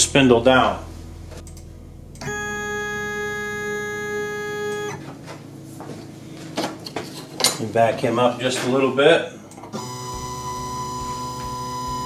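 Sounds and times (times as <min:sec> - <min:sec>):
stepper motor whining: 0:01.4 - 0:05.2, 0:09.5 - 0:12.0.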